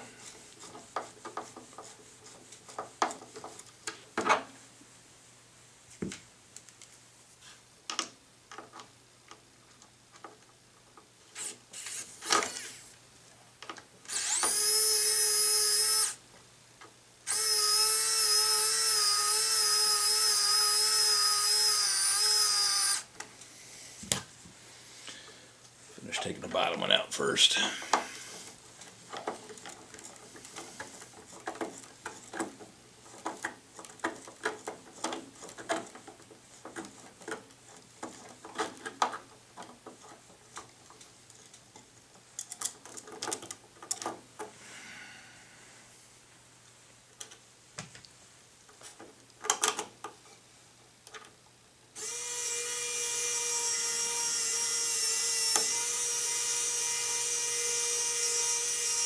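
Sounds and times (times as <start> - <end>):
small electric drill running: 14.1 - 16.2, 17.3 - 23.1, 52.0 - 59.0
screwdriver clicks and scrapes: 53.0 - 59.0.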